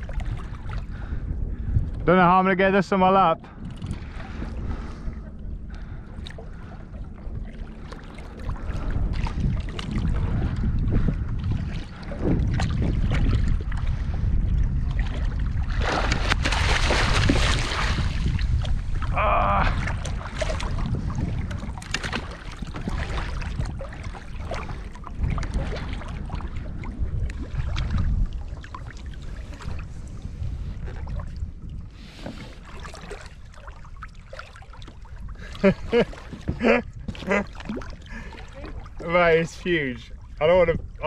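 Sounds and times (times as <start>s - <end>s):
water splashing around kayak: 0.0s - 41.0s
wind buffeting microphone: 0.0s - 41.0s.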